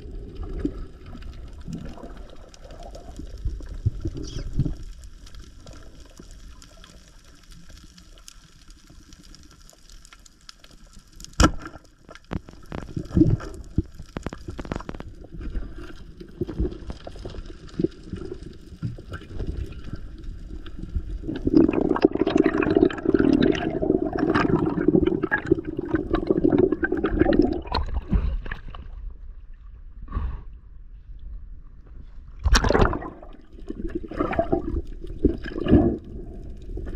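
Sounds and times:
bubbling rush of water: 0:00.0 - 0:07.7, 0:12.4 - 0:28.6, 0:32.4 - 0:36.9.

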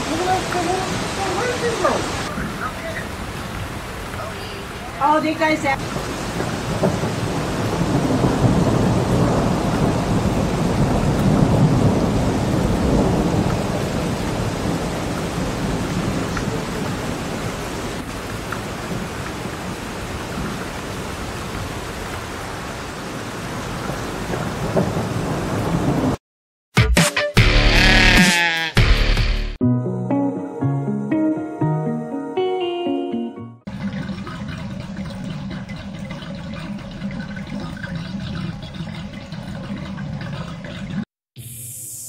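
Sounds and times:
heavy rain on water: 0:00.0 - 0:26.2.

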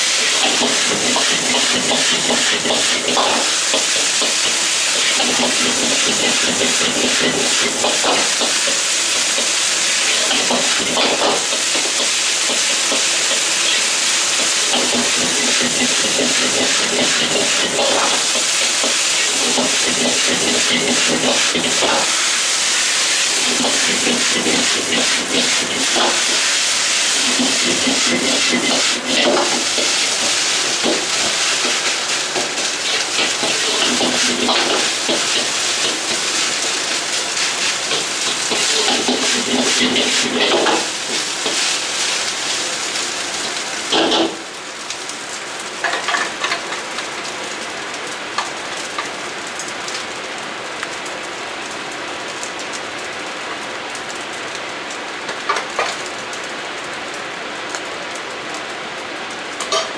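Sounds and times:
rice frying hiss: 0:00.0 - 0:59.9
metal ladle scraping wok: 0:59.6 - 0:59.9.

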